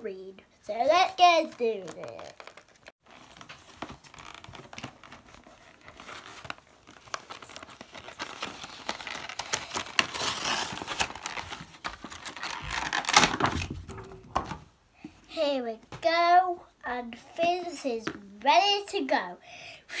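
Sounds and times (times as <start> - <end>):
cardboard tearing and crumpling: 1.8 - 14.5.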